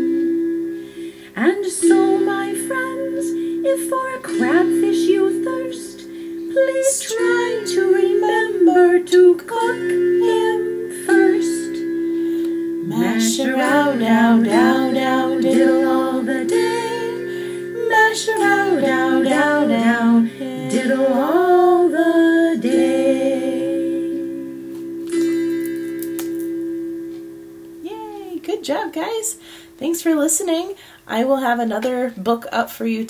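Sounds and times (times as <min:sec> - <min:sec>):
instrumental accompaniment: 0:00.0 - 0:28.5
woman singing: 0:01.4 - 0:11.9, 0:12.8 - 0:24.6.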